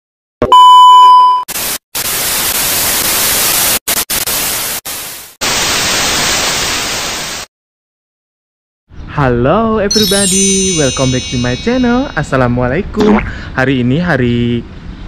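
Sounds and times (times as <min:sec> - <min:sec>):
static hiss bursts: 0:01.5 - 0:07.5.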